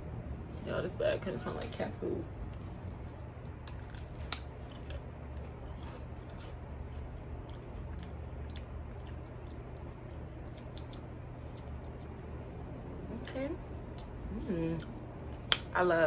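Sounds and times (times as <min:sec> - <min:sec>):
low hum: 0:00.0 - 0:16.0
person chewing crisps: 0:02.4 - 0:12.6.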